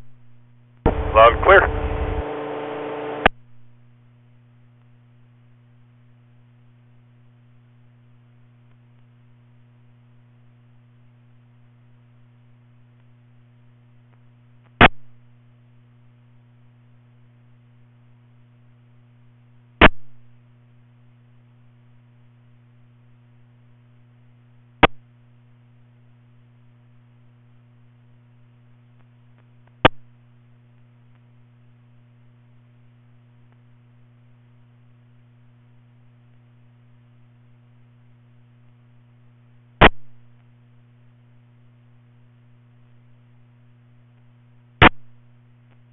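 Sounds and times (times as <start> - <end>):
low electrical hum: 0.0 - 45.9.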